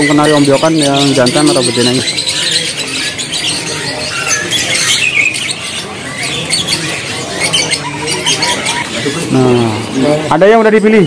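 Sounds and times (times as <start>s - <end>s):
songbirds chirping and twittering: 0.0s - 11.0s.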